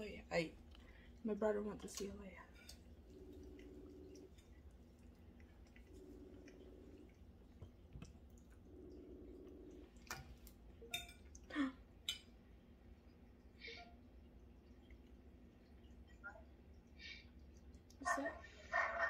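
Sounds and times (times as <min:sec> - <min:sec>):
faint video call ringing tone: 0:08.6 - 0:10.0.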